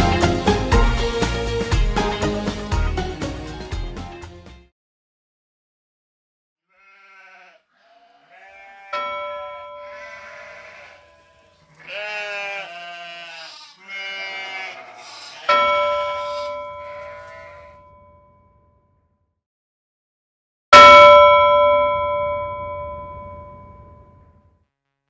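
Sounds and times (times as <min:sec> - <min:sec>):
animals bleating: 0:06.7 - 0:17.9
bell ringing: 0:08.9 - 0:10.5, 0:15.5 - 0:18.6, 0:20.8 - 0:24.4.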